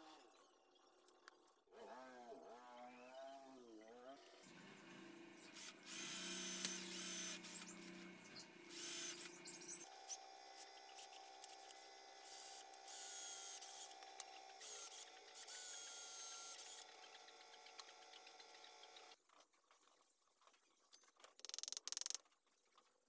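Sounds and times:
cordless drill boring into wood: 5.4s - 19.0s.

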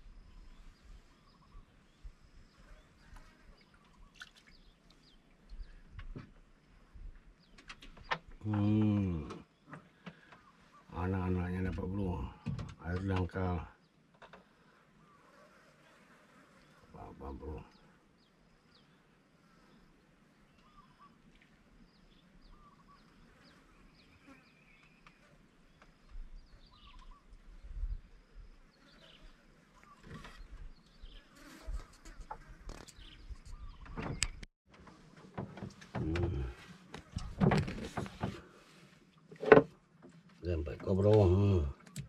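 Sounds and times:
gear handled on wooden boat: 32.0s - 42.0s.

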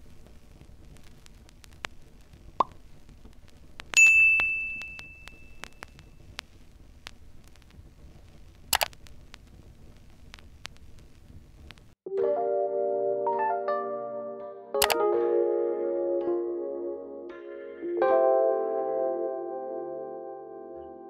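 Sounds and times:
bright bell-like ding: 4.0s - 5.8s
sharp click: 8.7s - 9.0s, 14.8s - 15.0s.

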